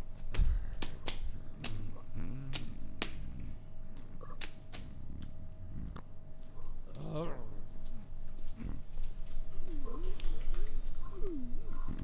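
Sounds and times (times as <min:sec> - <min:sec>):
faint steady hum: 0:00.0 - 0:12.0
sharp cracks and snaps: 0:00.3 - 0:05.4.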